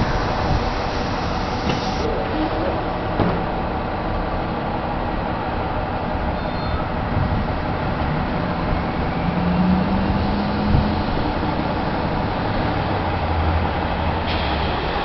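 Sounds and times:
bus engine idling: 0.0s - 9.3s, 10.1s - 15.0s
brief thump: 3.2s - 3.5s.

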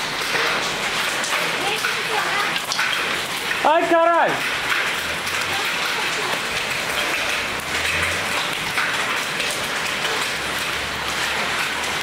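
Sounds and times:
hailstones ticking on paving: 0.0s - 12.0s
heavy rain splashing: 0.0s - 12.0s.

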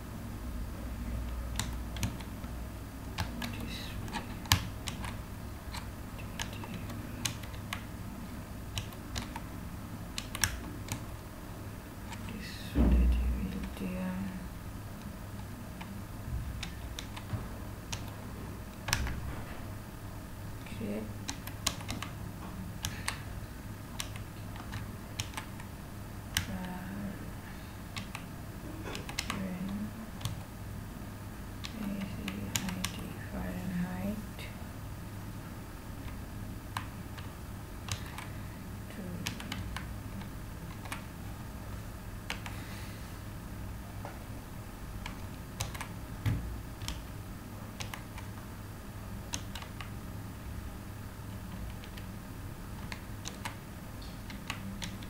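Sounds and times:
steady low hum: 0.0s - 55.0s
keyboard keys clicking: 1.2s - 2.4s, 3.2s - 7.9s, 8.7s - 9.5s, 10.1s - 11.1s, 16.5s - 19.3s, 21.2s - 22.2s, 24.0s - 25.7s, 27.9s - 28.3s, 28.9s - 30.5s, 39.2s - 41.1s, 45.0s - 47.2s, 47.8s - 48.4s, 49.3s - 50.0s, 51.5s - 52.1s, 52.8s - 55.0s.

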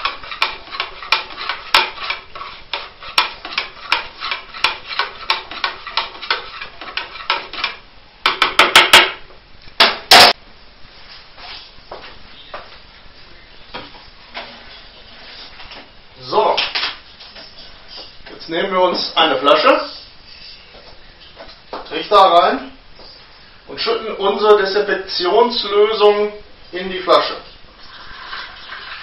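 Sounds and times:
sharp knocks: 8.2s - 9.2s, 9.8s - 10.4s.

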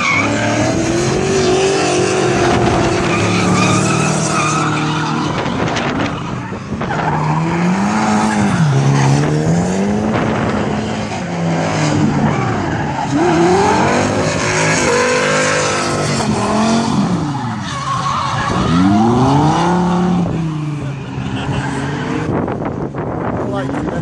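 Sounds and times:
tyres screeching: 0.0s - 9.2s
car engines revving: 0.0s - 24.0s.

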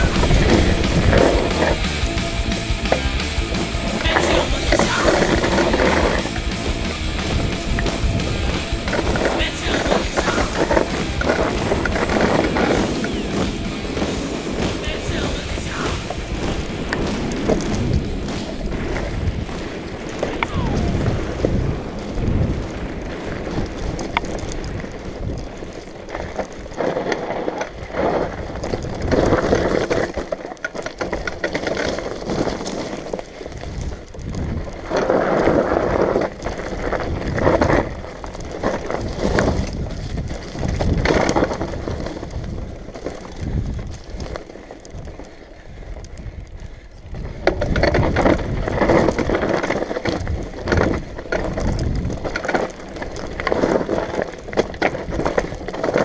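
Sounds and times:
tyres bumping on ground: 0.0s - 27.8s
bicycle rattling over rough trail: 0.0s - 56.0s.

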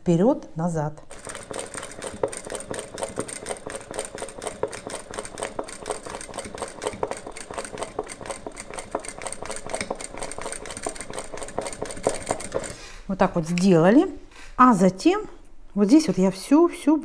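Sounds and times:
sewing machine running: 1.1s - 12.8s.

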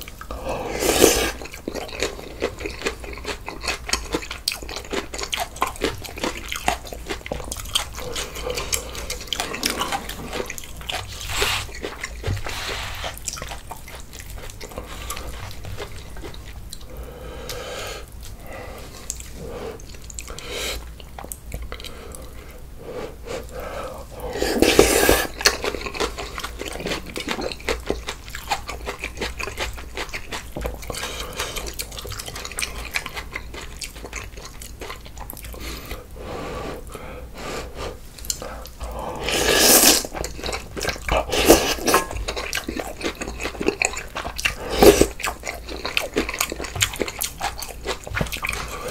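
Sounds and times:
wet chewing: 0.0s - 22.6s, 23.3s - 36.1s, 38.1s - 48.9s
slurping noodles and broth: 0.3s - 1.5s, 8.0s - 13.7s, 21.8s - 27.1s, 35.5s - 46.8s.

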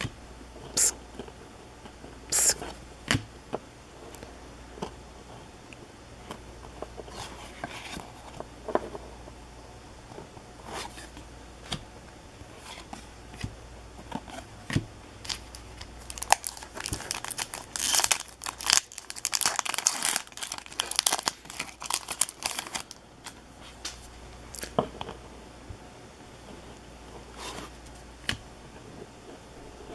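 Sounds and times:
trading cards rustling and clicking: 15.3s - 24.0s.

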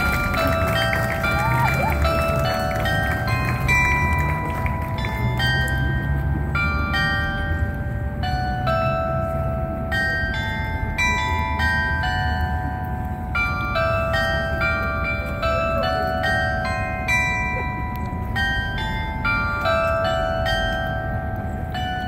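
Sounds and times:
glockenspiel bells playing a tune: 0.0s - 22.0s.

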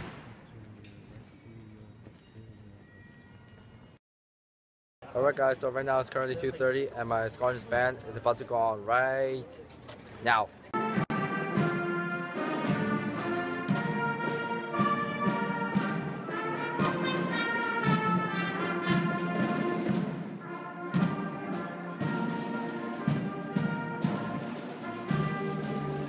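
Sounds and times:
brass instruments playing chords: 10.7s - 26.0s
bass drum and snare beats: 12.6s - 20.4s.

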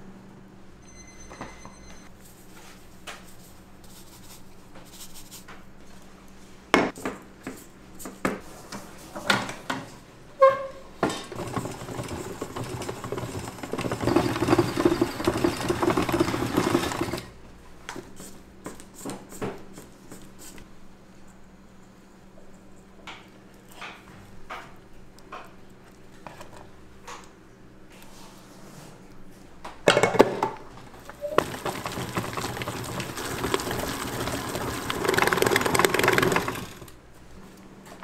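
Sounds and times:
utensils and dishes clinking: 10.5s - 17.3s.

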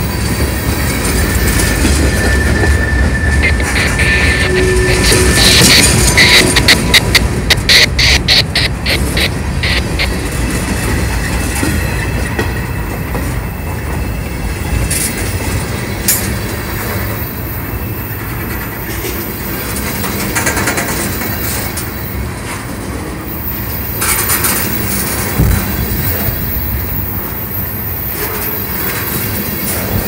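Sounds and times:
high wheel squeal: 0.0s - 22.3s, 23.3s - 30.0s
freight train wheels rumbling on rail: 0.0s - 30.0s.

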